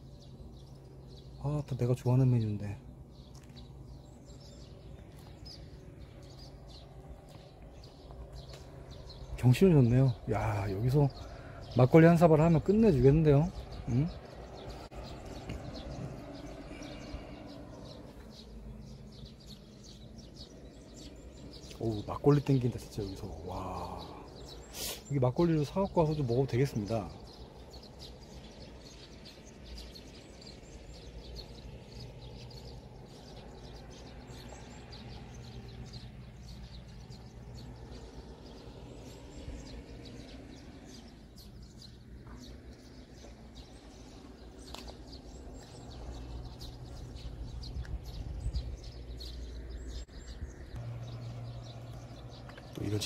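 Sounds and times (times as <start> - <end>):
low steady rumble: 0.0 - 24.7, 27.0 - 53.0
small birds chirping: 0.0 - 53.0.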